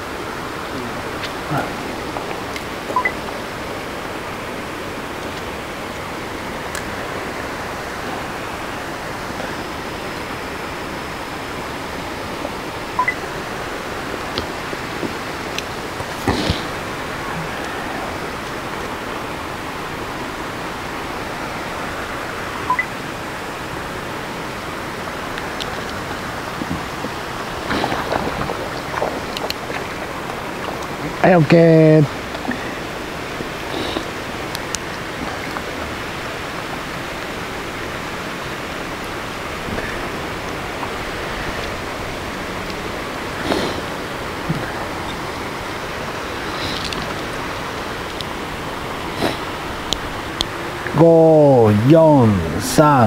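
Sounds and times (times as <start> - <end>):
running water rushing: 0.0 - 53.0
faint clicks: 46.6 - 47.3.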